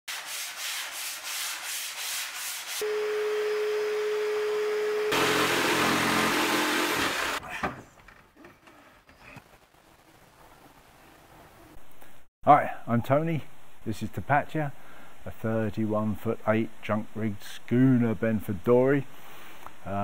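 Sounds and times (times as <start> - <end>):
sandpaper rubbing on wood: 0.1 - 2.8
vacuum cleaner running: 2.8 - 7.4.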